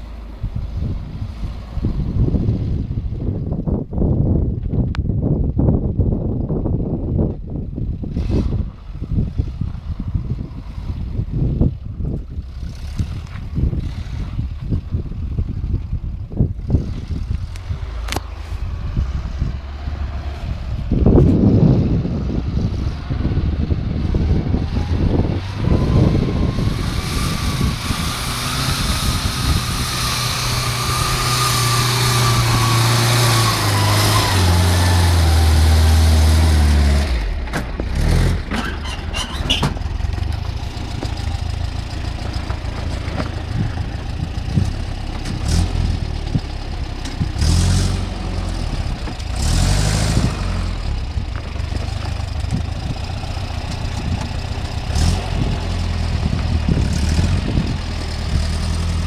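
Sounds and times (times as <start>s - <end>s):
truck engine working hard: 6.0s - 59.0s.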